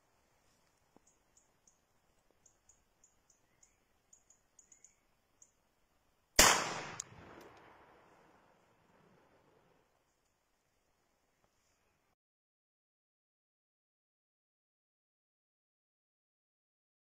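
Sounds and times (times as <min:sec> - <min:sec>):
faint high chirps: 0:00.7 - 0:05.6
shotgun shot echoing: 0:06.4 - 0:08.3.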